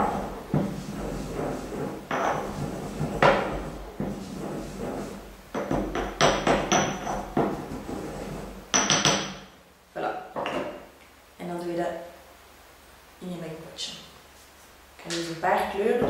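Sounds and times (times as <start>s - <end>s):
pestle pounding in a mortar: 5.5s - 7.8s.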